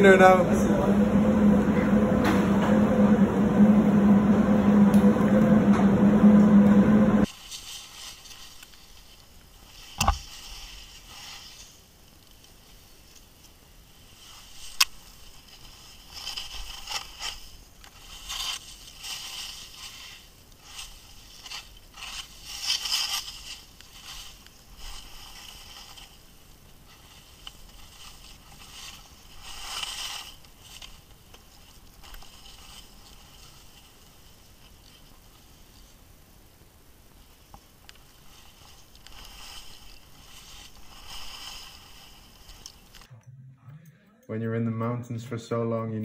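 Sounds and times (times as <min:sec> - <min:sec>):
skis scraping through snow: 0:02.4 - 0:43.0.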